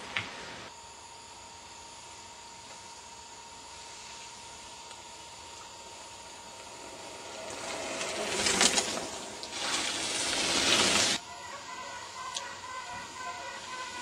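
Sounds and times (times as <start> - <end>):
bike tyres rolling over gravel: 6.6 - 11.3.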